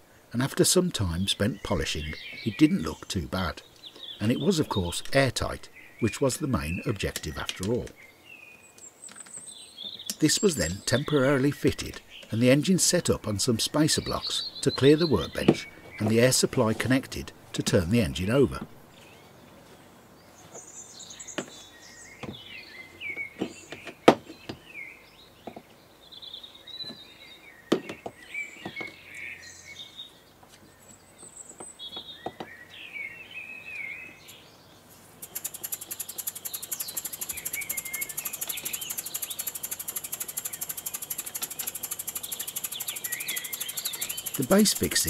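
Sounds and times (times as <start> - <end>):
birds chirping: 0.0 - 45.0
model steam engine ticking: 35.2 - 45.0.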